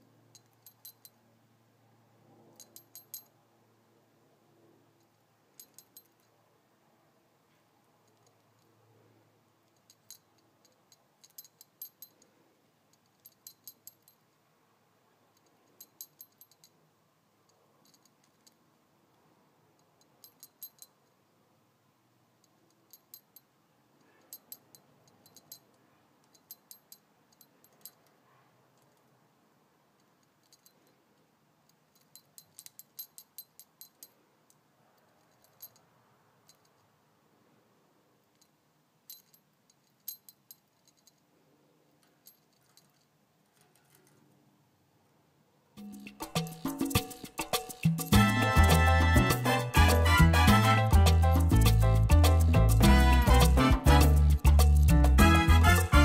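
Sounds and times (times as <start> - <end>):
small metal bells tinkling: 0.3 - 1.2, 12.9 - 14.2, 45.8 - 56.0.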